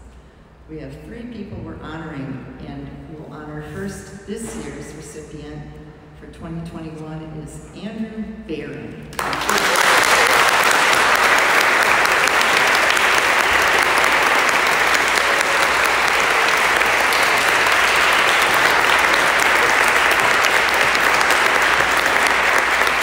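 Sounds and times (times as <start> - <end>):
crowd applauding: 9.1 - 23.0.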